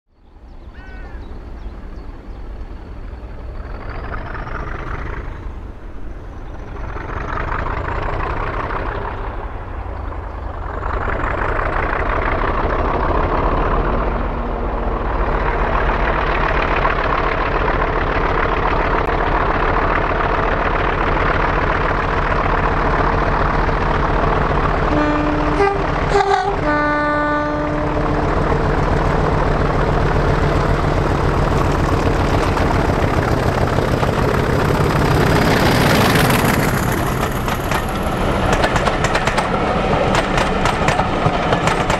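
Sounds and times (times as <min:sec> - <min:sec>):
diesel locomotive engine: 0:00.1 - 0:41.9
locomotive horn: 0:24.8 - 0:28.4.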